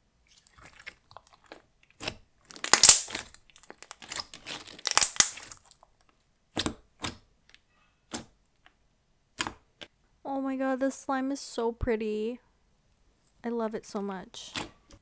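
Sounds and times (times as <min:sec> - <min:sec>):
sticky slime clicks and pops: 0:02.6 - 0:03.3, 0:04.8 - 0:05.5.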